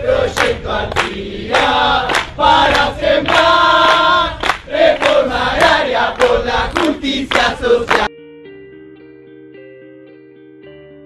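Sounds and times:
crowd chanting: 0.0 - 8.1.

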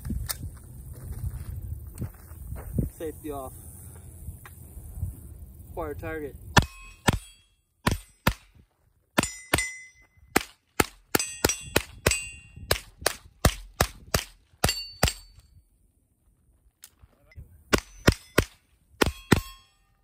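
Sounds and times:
metal targets ringing: 6.6 - 8.4, 9.2 - 10.3, 11.1 - 12.7, 14.6 - 15.5, 17.8 - 20.0
rifle shots: 17.7 - 19.6.

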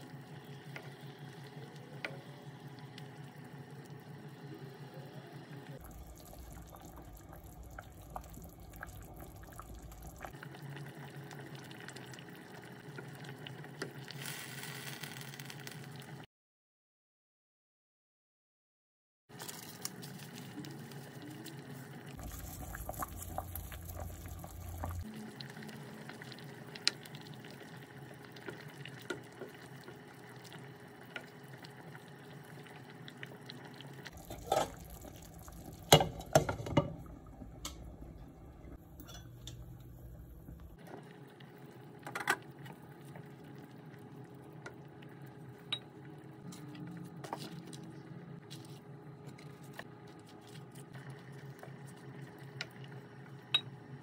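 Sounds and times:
soup bubbling in a pot: 5.8 - 16.2, 19.8 - 47.8, 50.5 - 54.0.

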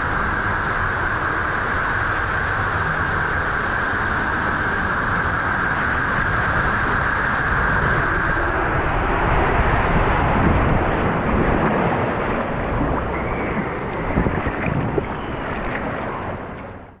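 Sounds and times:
rushing water: 0.0 - 17.0
water sloshing: 10.8 - 17.0.

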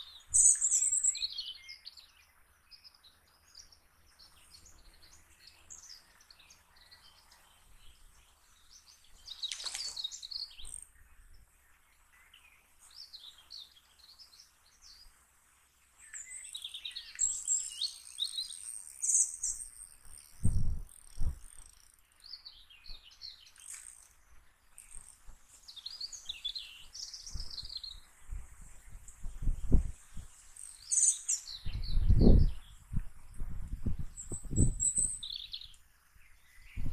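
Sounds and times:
small birds chirping: 0.0 - 36.9.

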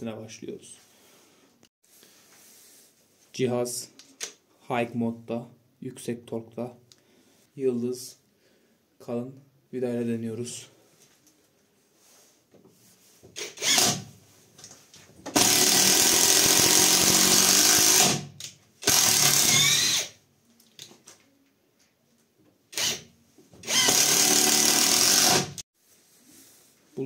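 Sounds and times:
impact wrench driving screw: 13.4 - 14.1, 15.3 - 20.2, 22.7 - 25.6.

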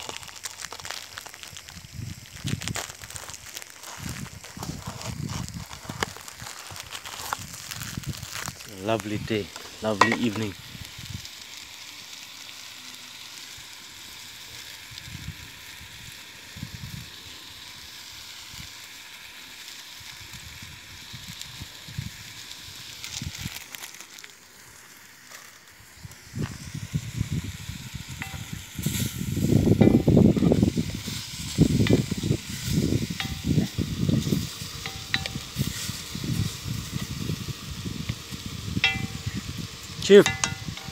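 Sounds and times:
stew sizzling in pot: 0.0 - 40.9
spoon stirring and scraping pot: 40.2 - 40.9.

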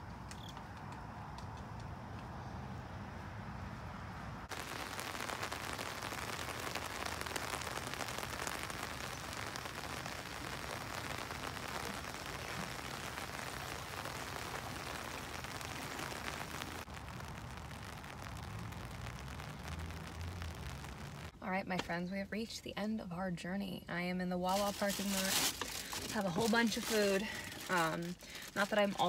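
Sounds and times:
steady rain falling: 4.4 - 21.4, 24.8 - 29.0.

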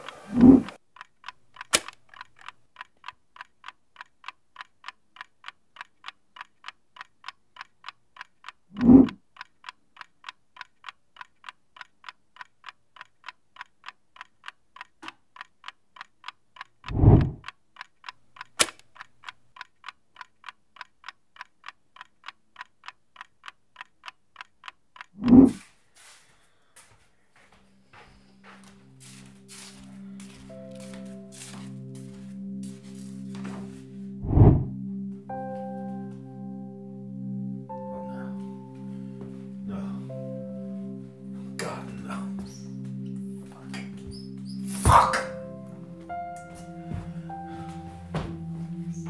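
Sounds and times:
sharp clicks: 0.0 - 25.6
clock ticking: 0.1 - 49.0
deep boom: 34.2 - 34.7.

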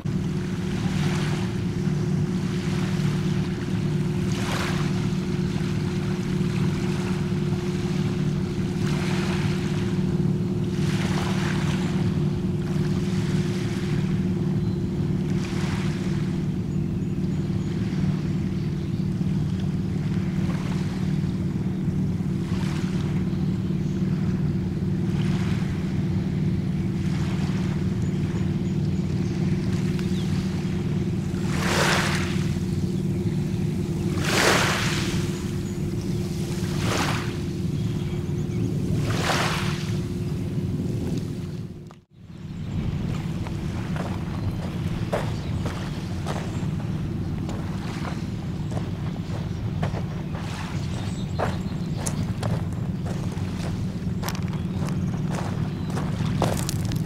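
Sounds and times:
small waves washing onto shore: 0.0 - 42.1, 42.9 - 57.0
low engine drone: 0.0 - 57.0.

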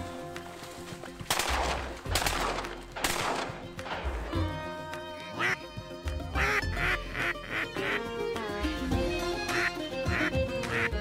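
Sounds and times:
background music: 0.0 - 11.0
ducks quacking: 5.3 - 5.7, 6.3 - 8.1, 9.5 - 11.0.

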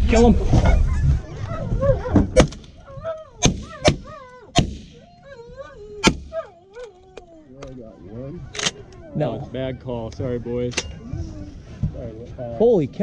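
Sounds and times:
shotgun blasts: 3.4 - 5.0.

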